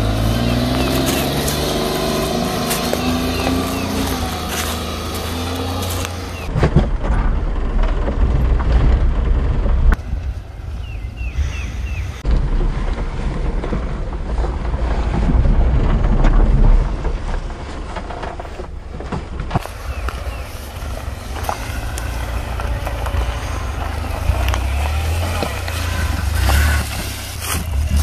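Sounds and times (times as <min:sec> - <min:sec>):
small truck engine rumbling: 0:00.0 - 0:28.0.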